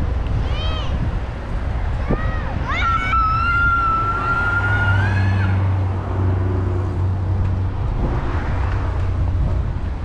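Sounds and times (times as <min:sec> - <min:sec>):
street traffic hum: 0:00.0 - 0:10.0.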